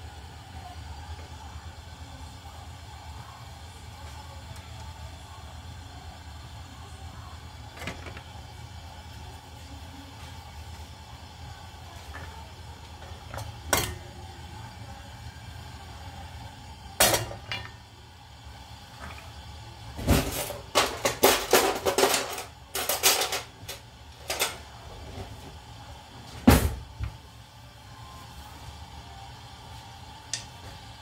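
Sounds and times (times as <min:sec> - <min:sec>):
steady hum: 0:00.0 - 0:31.0.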